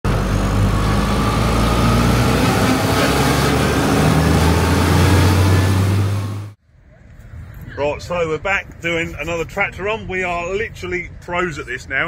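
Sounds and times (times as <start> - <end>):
tractor diesel engine drone: 0.0 - 6.6.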